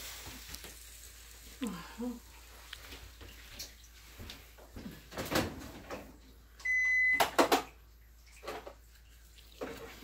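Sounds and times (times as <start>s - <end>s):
kitchen utensils clattering: 4.8s - 6.2s, 7.1s - 7.8s, 8.4s - 8.8s
appliance electronic beep: 6.6s - 7.4s.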